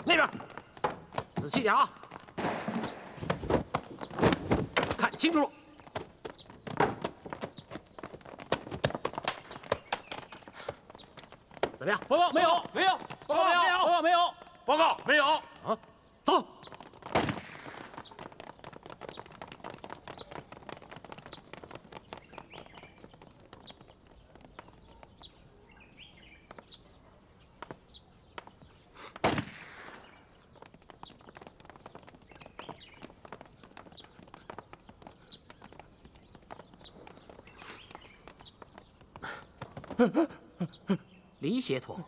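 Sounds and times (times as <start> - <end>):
boots running on floor: 0.0 - 5.2, 5.8 - 13.6, 16.6 - 25.3, 30.4 - 40.2.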